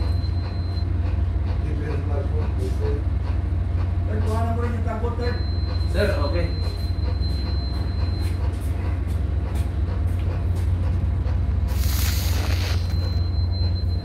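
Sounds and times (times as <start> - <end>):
short rush of noise: 11.7 - 13.0.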